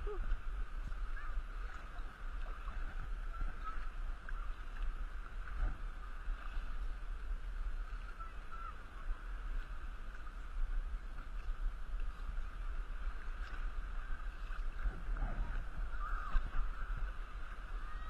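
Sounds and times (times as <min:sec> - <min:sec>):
water sloshing around kayak: 0:00.0 - 0:18.0
low rumble: 0:09.5 - 0:18.0.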